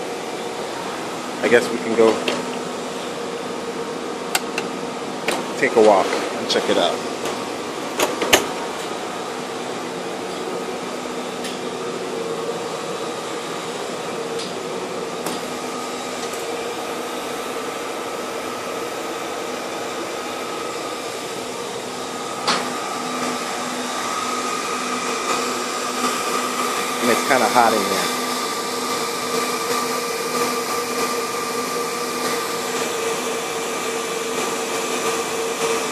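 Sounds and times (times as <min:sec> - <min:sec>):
cooling fans whirring: 0:00.0 - 0:35.9.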